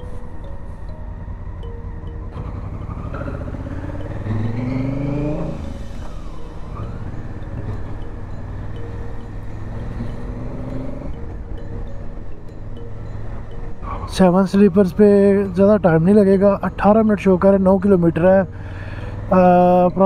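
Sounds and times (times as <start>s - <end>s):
motorcycle engine accelerating: 0.0s - 14.1s.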